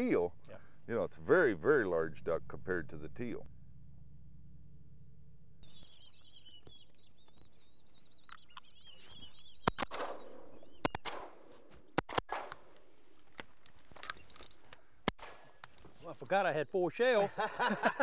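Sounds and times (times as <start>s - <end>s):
ducks whistling: 5.6s - 11.1s
shotgun shots: 9.6s - 12.8s, 15.0s - 15.6s.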